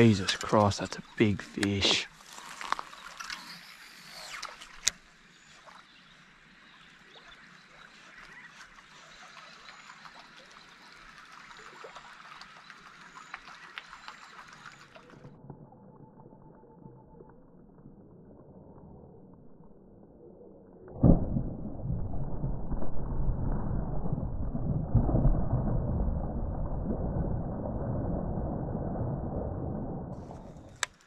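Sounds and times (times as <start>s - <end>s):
river water trickling: 0.0s - 15.6s.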